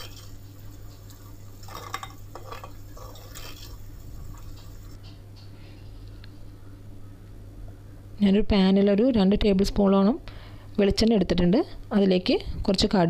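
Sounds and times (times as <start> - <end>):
steady low hum: 0.0 - 13.0
wooden spoon scraping a clay pot: 1.6 - 3.8.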